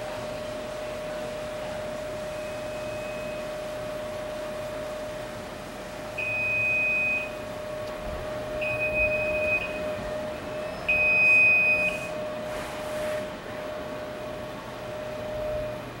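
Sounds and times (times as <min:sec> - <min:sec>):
steady hum: 0:00.0 - 0:16.0
high electronic beeps: 0:10.6 - 0:12.1.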